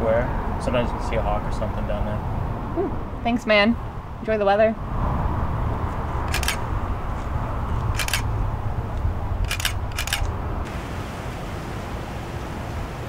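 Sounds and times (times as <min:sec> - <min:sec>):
camera shutter clicks: 0:06.3 - 0:06.7, 0:07.9 - 0:08.3, 0:09.4 - 0:10.4.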